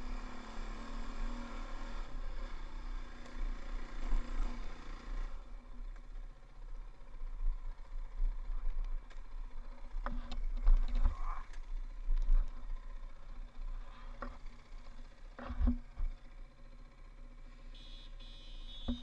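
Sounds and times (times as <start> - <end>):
dirt bike engine rumble: 4.0 - 19.0.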